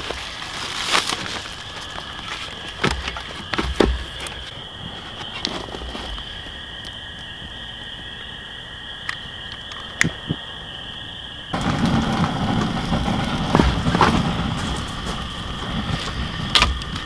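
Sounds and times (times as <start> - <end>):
wood fire crackling: 0.0 - 8.1, 11.5 - 17.0.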